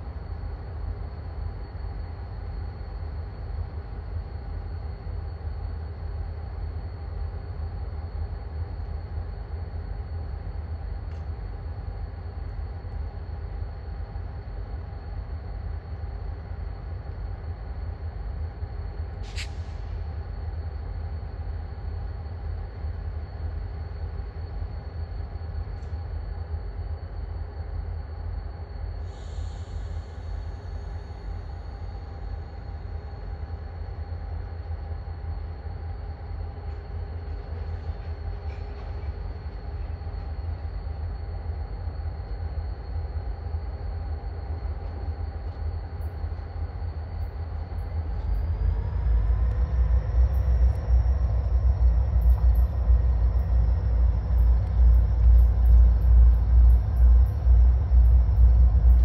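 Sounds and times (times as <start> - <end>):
locomotive engine rumble: 47.4 - 59.0.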